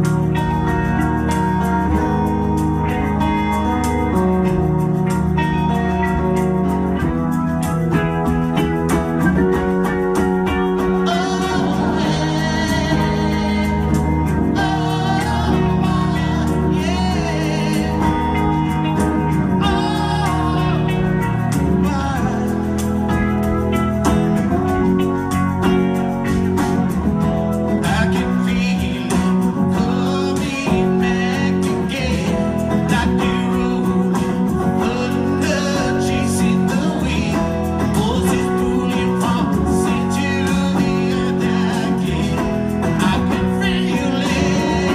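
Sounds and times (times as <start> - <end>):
strummed acoustic guitar: 0.0 - 44.9
man singing: 10.8 - 23.1, 27.7 - 44.9.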